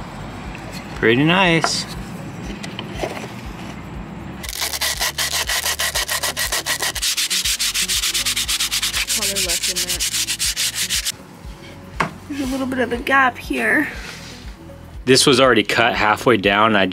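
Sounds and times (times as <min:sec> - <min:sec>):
wood sanding by hand: 0:04.5 - 0:11.1.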